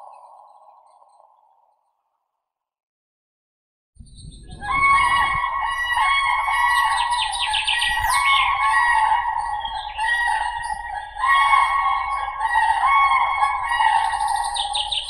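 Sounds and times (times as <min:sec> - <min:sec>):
cranes trumpeting calls: 0:04.6 - 0:15.0.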